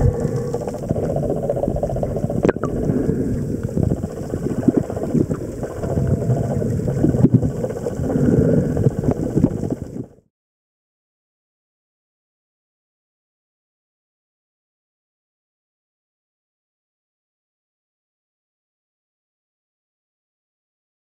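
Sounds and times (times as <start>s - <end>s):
underwater crackles: 0.0s - 10.3s
underwater rumble of water: 0.0s - 10.3s.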